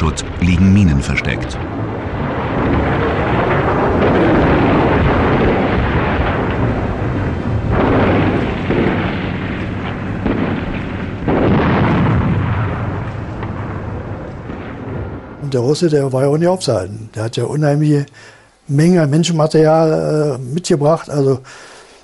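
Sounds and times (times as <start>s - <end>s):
heavy blasts: 0.0s - 16.9s
rumble of explosions: 0.0s - 18.1s.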